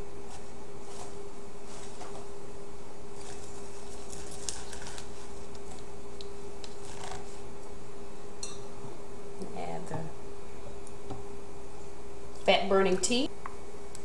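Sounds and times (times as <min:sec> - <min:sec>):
steady hum: 0:00.0 - 0:14.0
greens rustling and crackling: 0:03.1 - 0:07.6.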